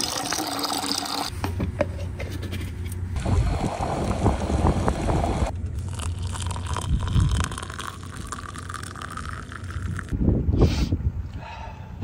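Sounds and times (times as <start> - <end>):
water boiling: 0.0 - 1.3, 3.2 - 10.1
water pouring into a mug: 0.0 - 1.3, 3.2 - 10.1
wind on microphone: 3.2 - 5.5.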